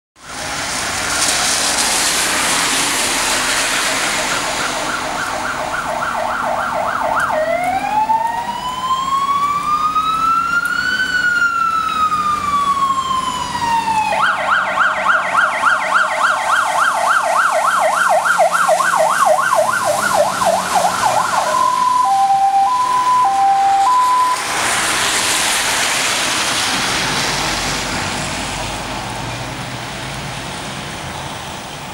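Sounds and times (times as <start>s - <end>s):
wet road tyre hiss: 0.2s - 5.5s, 15.4s - 21.5s, 23.8s - 31.9s
fire engine siren: 0.2s - 29.4s.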